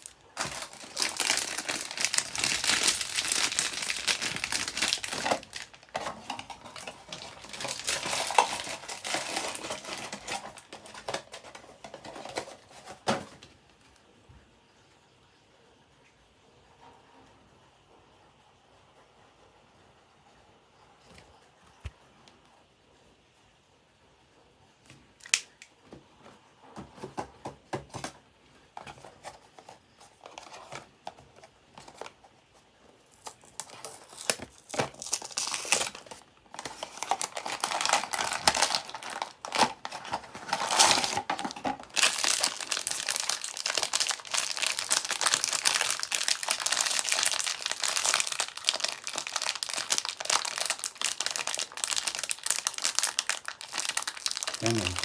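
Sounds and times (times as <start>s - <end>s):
foil wrapper crinkling and tearing: 0.0s - 13.4s, 32.9s - 55.0s.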